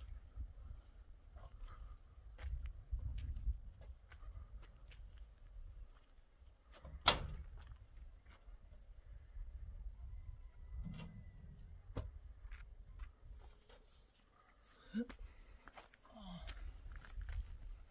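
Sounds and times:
cricket chirping: 0.0 - 17.9.

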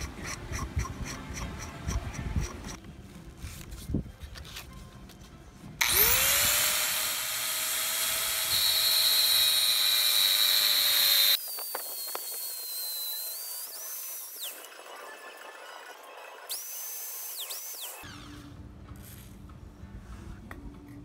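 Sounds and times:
rotary tool cutting metal whine: 5.8 - 18.5.

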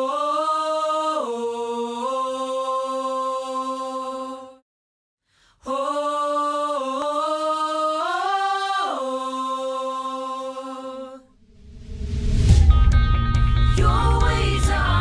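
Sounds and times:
person singing unaccompanied: 13.7 - 15.0.

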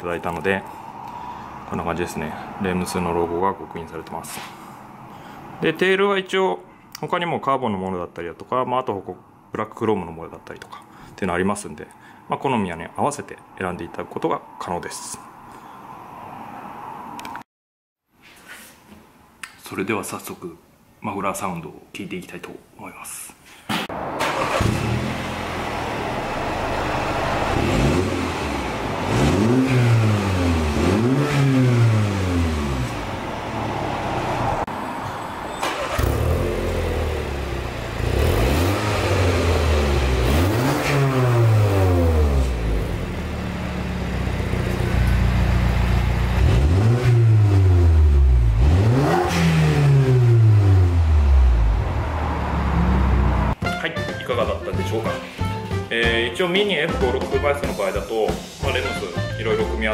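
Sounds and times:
engine revving blips: 24.2 - 34.6, 35.5 - 43.2, 44.7 - 53.6
car engine idling: 41.4 - 46.6.

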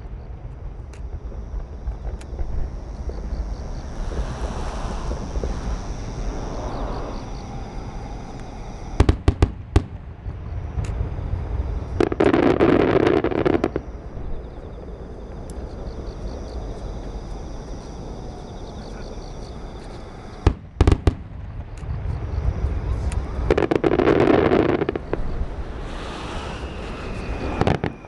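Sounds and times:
low rumble: 0.0 - 12.1, 13.6 - 23.6.

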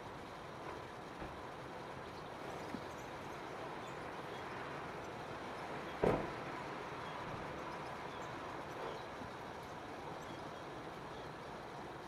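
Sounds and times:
outdoor background noise: 0.0 - 12.0
thump: 6.0 - 6.3.

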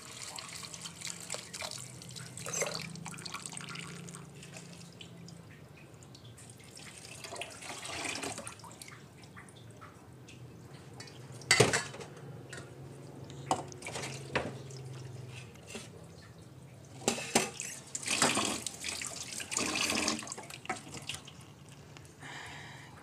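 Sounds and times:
water pouring from a bowl: 0.0 - 5.4, 17.0 - 21.8
water splashing in a metal sink: 0.0 - 10.0, 13.4 - 21.6.

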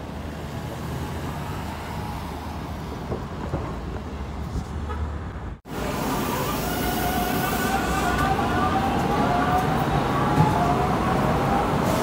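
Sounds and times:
rail car electrical whine: 5.8 - 12.0.

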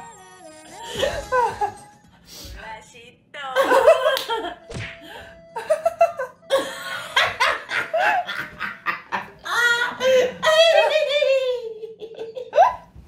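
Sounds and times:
women laughing hard: 1.0 - 1.8, 3.6 - 4.6, 5.6 - 12.9.

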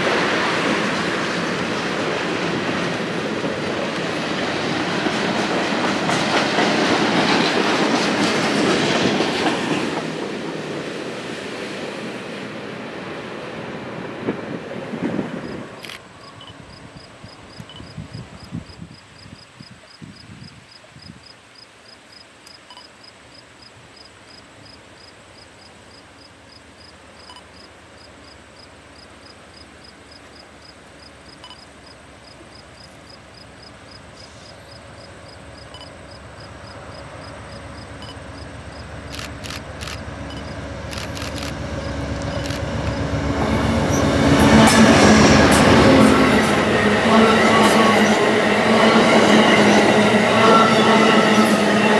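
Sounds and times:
train wheels clicking over rails: 0.0 - 12.3, 34.1 - 51.9
diesel locomotive engine: 0.0 - 18.6, 24.4 - 51.9.

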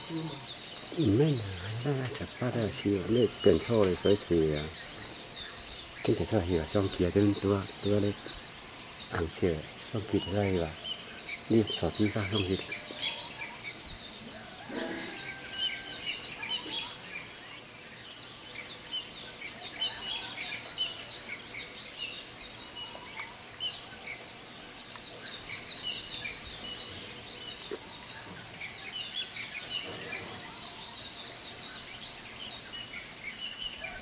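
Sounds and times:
chorus of birds chirping: 0.0 - 34.0.

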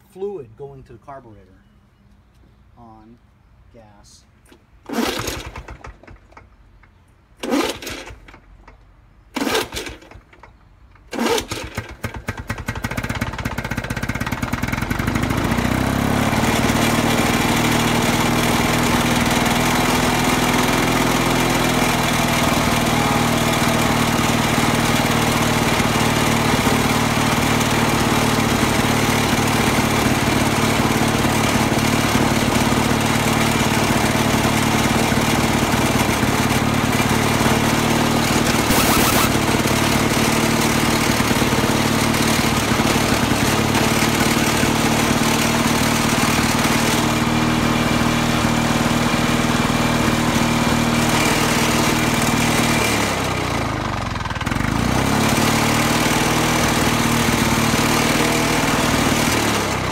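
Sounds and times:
recoil starter pulls: 4.4 - 47.2
mower engine running: 4.8 - 6.5, 7.4 - 59.9.

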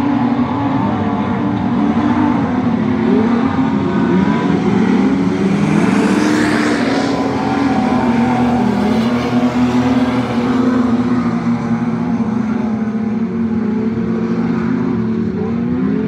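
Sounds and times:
race car engines racing: 0.0 - 16.0
car passing close: 3.5 - 12.2.

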